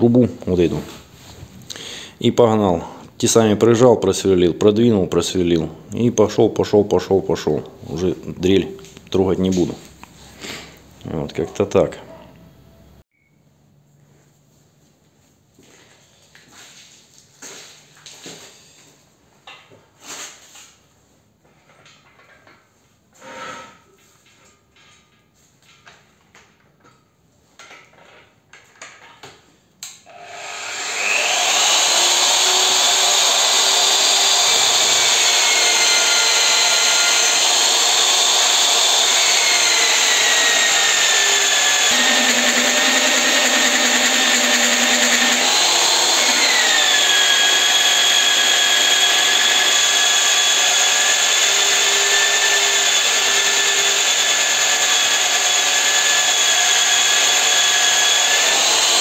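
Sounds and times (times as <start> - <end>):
drill cutting steel tube: 30.1 - 59.0.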